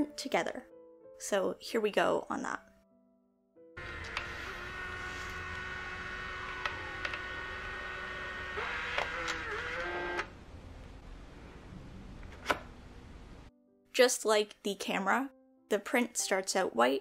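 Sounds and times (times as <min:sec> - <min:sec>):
printer motor whirring: 0:03.8 - 0:10.3
printer clicks: 0:06.5 - 0:07.3, 0:08.6 - 0:10.3.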